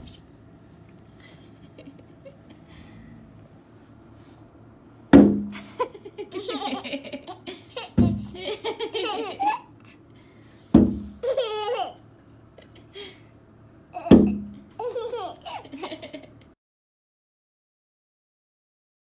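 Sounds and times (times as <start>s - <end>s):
toddler laughing and squealing: 9.0s - 9.7s, 11.2s - 12.0s, 14.8s - 15.7s.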